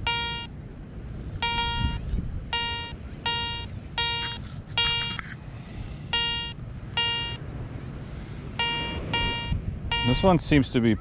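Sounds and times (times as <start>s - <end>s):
metal detector short beeps: 0.0s - 0.5s, 1.4s - 5.3s, 6.1s - 7.4s, 8.6s - 10.3s
low steady rumble: 0.0s - 11.0s.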